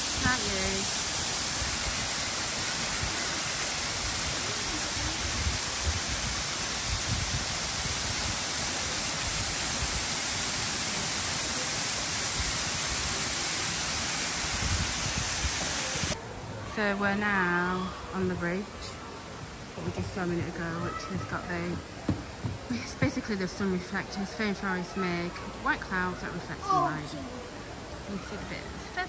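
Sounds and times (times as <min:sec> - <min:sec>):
waterfall pouring onto rocks: 0:00.0 - 0:16.2.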